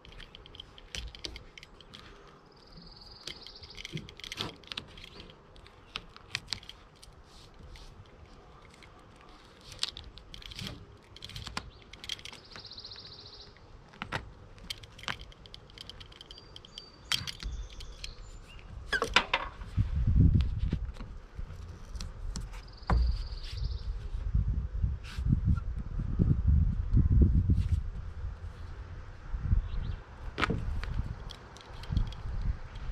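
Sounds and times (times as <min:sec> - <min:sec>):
tape crinkling and rustling: 0:00.0 - 0:23.6.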